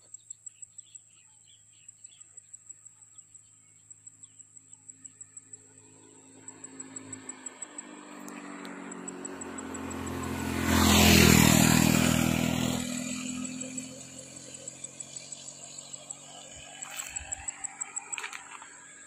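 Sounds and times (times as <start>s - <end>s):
vehicle driving past: 5.6s - 19.0s.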